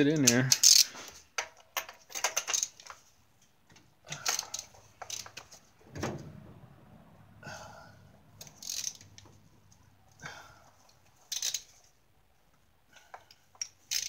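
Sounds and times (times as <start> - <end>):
metal tools clinking: 8.4 - 9.2.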